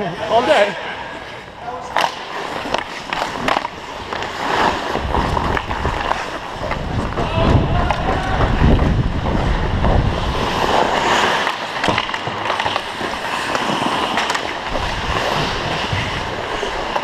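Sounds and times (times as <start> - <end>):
skate blades scraping ice: 0.3 - 17.0
wind rumble on microphone: 5.0 - 11.0.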